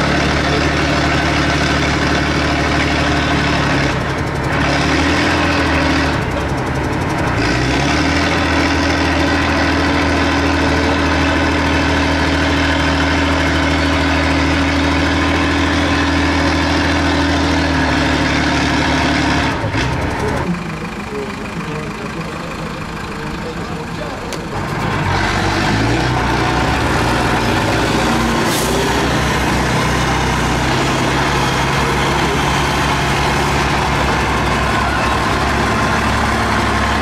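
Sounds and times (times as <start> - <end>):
diesel truck engine running: 0.0 - 37.0.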